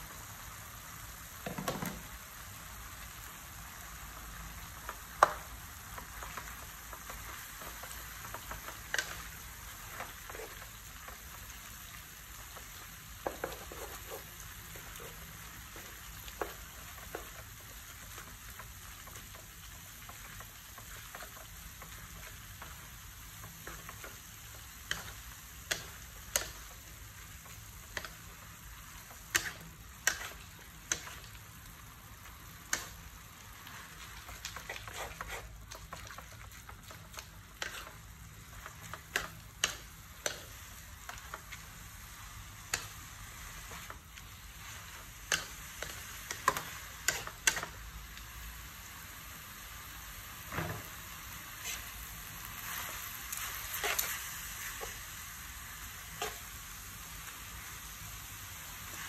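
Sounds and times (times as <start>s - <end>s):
food sizzling in a wok: 0.0s - 59.0s
spatula knocking and scraping pan: 13.2s - 17.6s, 34.0s - 41.6s.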